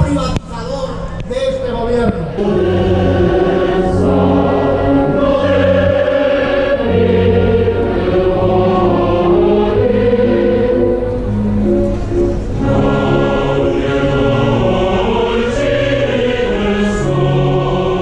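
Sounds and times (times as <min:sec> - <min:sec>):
orchestral strings: 0:00.0 - 0:18.0
double bass: 0:02.0 - 0:16.4
large mixed choir singing: 0:02.4 - 0:18.0.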